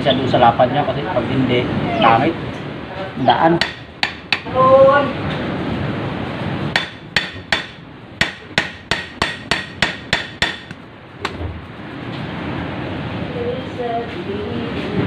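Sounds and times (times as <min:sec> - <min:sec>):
hammer striking steel rod: 0:03.6 - 0:04.6, 0:06.7 - 0:11.4.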